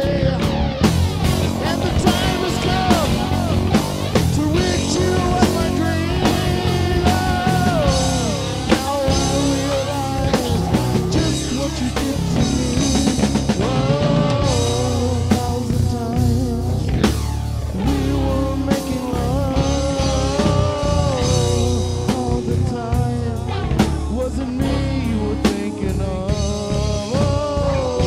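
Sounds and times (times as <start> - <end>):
electric guitar: 0.0 - 28.0
rock music: 0.0 - 28.0
steady drum beat: 0.0 - 28.0
sliding melody line: 1.0 - 16.1.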